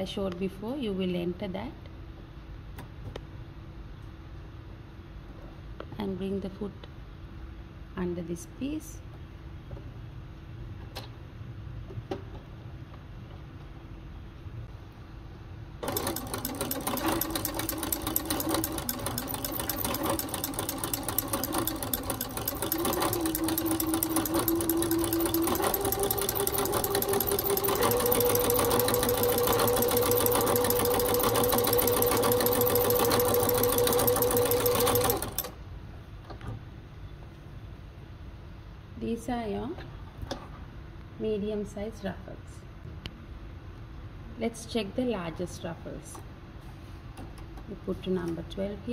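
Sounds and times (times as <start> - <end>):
rapid ticking of stitches: 15.8 - 35.5
sewing machine running: 15.8 - 35.6.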